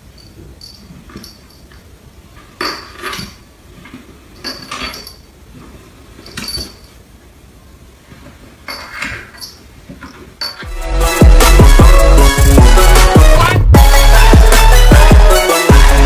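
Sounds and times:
light metallic jingle: 0:00.0 - 0:02.0, 0:04.3 - 0:05.4, 0:06.1 - 0:07.0, 0:08.7 - 0:10.7.

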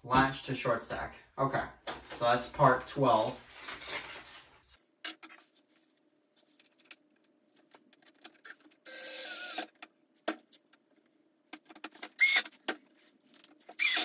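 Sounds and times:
cordless drill whirring: 0:08.9 - 0:09.6, 0:13.8 - 0:14.0.

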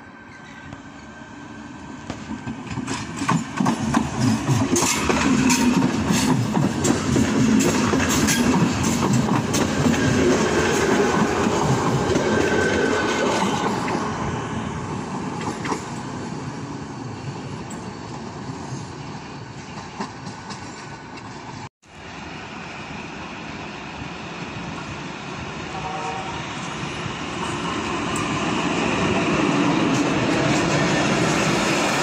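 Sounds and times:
train wheels rumbling on rails: 0:01.8 - 0:32.0.

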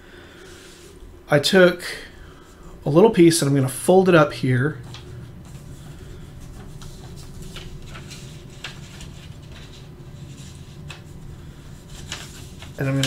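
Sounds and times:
steady low hum: 0:00.0 - 0:13.0
paper envelope rustling: 0:04.8 - 0:13.0.

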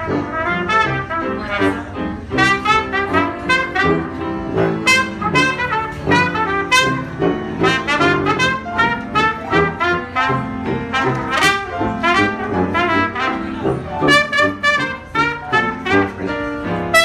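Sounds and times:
trumpet melody: 0:00.0 - 0:17.0
tuba bass line: 0:00.0 - 0:17.0
upright piano: 0:00.0 - 0:17.0.

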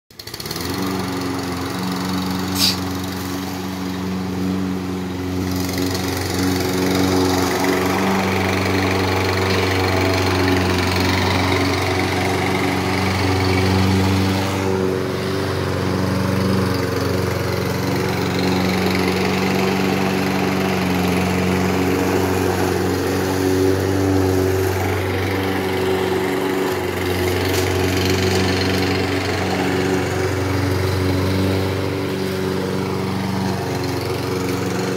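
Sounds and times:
lawn mower engine cutting grass: 0:00.1 - 0:34.9
brief sharp high sound: 0:02.6 - 0:02.8.

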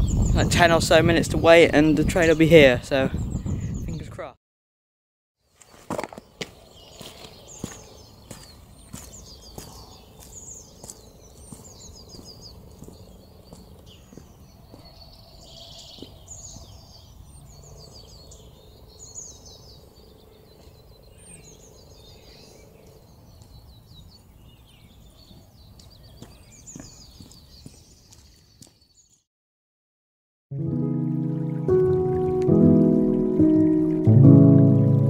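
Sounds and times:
songbirds chirping and trilling: 0:00.0 - 0:04.3, 0:05.5 - 0:29.2
footsteps on road: 0:05.5 - 0:16.2, 0:25.2 - 0:29.0.

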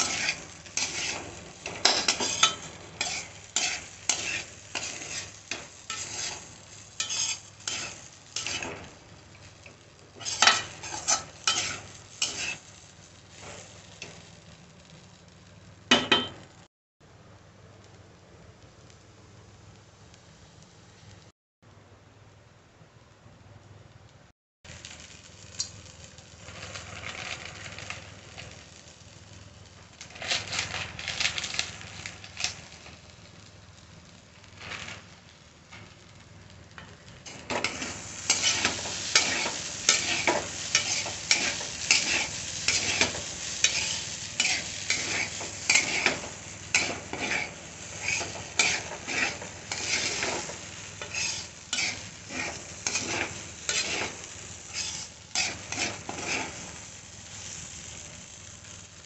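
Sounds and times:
metal skimmer scraping pan: 0:00.0 - 0:08.9, 0:10.2 - 0:12.6, 0:37.3 - 0:56.7
frying sizzle: 0:00.0 - 0:21.3, 0:23.1 - 0:59.0.

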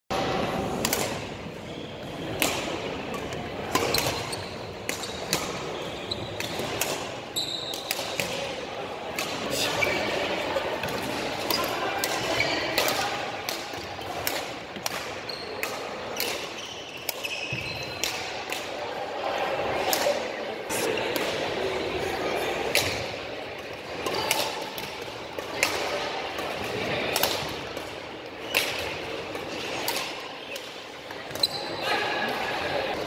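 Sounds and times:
rackets hitting shuttlecock: 0:00.2 - 0:01.4, 0:02.0 - 0:18.8, 0:20.9 - 0:21.6, 0:22.6 - 0:31.7
shoes squeaking on wooden court: 0:03.1 - 0:08.0, 0:15.1 - 0:18.1, 0:29.6 - 0:32.0.

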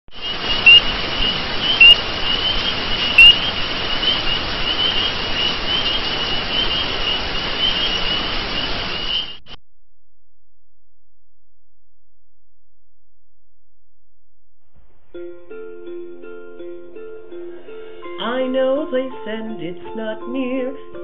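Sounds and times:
steady hiss: 0:00.1 - 0:09.4
dense chirping: 0:00.1 - 0:09.6.

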